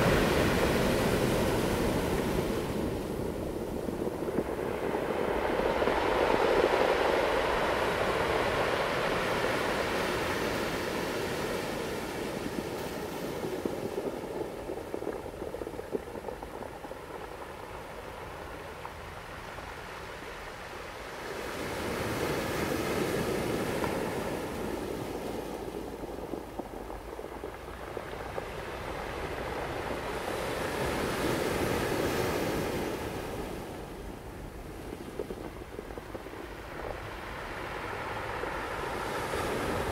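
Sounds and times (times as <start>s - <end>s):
ocean waves breaking: 0.0s - 16.5s.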